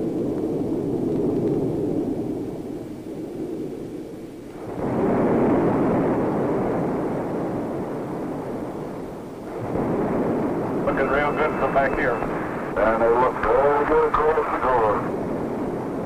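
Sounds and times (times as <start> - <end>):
rocket engine rushing roar: 8.9 - 16.0.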